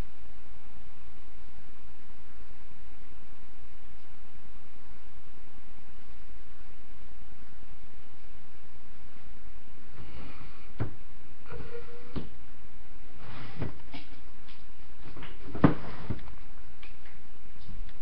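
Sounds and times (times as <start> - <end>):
knocks and bumps: 15.0 - 17.2.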